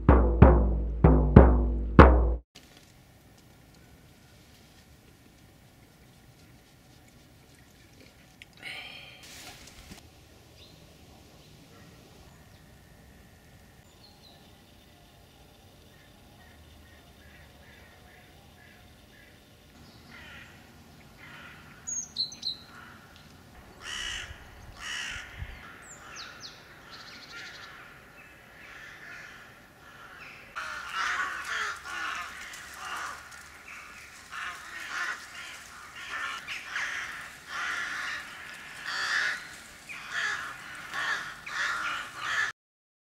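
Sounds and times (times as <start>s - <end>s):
crows cawing: 20.1s - 20.6s, 21.2s - 22.0s, 22.6s - 42.5s.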